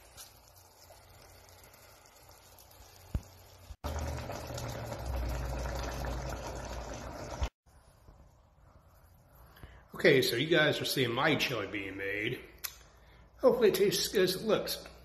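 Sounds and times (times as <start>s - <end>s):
chili bubbling in a pan: 0.0s - 7.8s.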